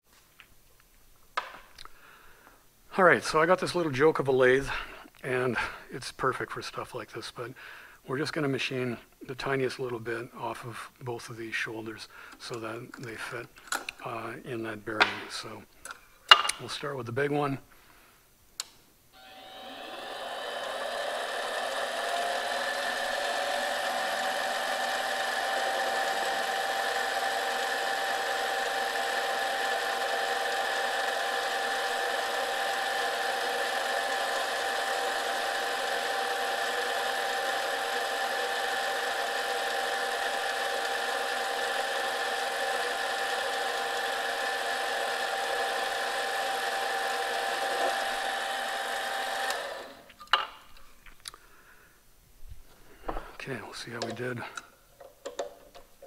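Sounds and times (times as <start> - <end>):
lathe motor whine: 19.2 - 50.1.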